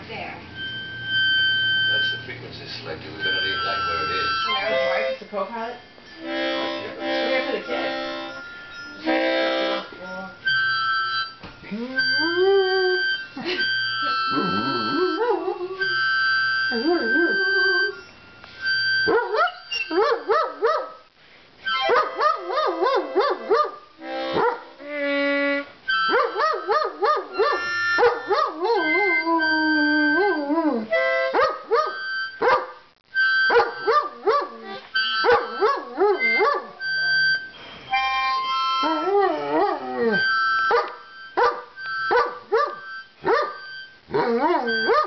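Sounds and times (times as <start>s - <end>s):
harmonica long high notes: 0.1s - 20.6s, 21.6s - 45.0s
dog howling: 11.7s - 13.2s, 14.1s - 18.0s, 25.9s - 31.0s, 33.6s - 37.0s, 38.8s - 41.0s, 44.1s - 45.0s.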